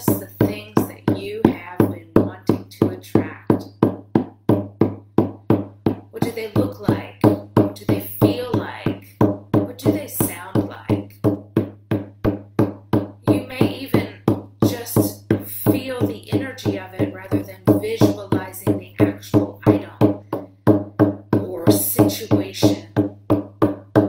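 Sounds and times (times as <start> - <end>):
woman's wordless voice: 0.0 - 3.7, 6.1 - 11.2, 13.2 - 20.1, 21.4 - 23.0
hand drum steady beat: 0.0 - 24.0.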